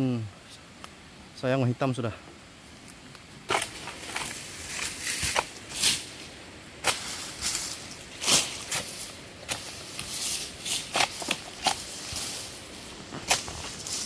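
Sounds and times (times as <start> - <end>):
fronds rustling: 0.0 - 14.0
chisel chopping frond bases: 8.3 - 11.9.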